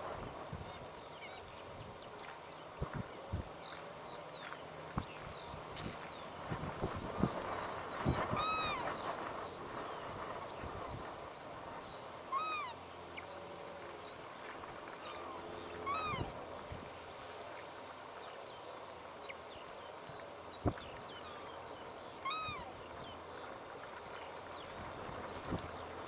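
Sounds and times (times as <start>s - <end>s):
bird yelping calls: 15.9s - 16.3s.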